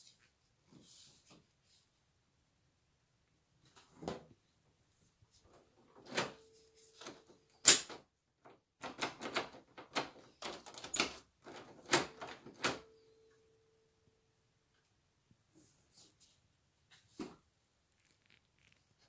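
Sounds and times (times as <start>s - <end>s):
doorknob and latch rattling: 8.8s - 12.9s.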